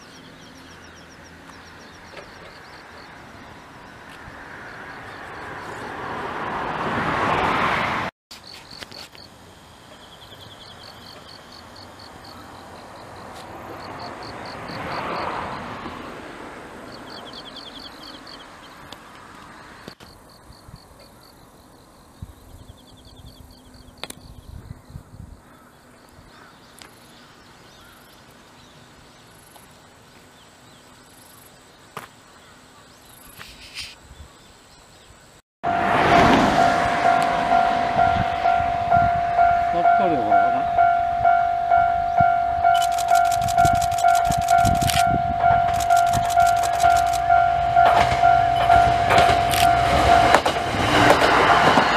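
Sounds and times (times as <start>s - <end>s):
insects chirping in pulsed trills: 8.4s - 15.8s, 16.8s - 18.9s, 35.7s - 51.9s.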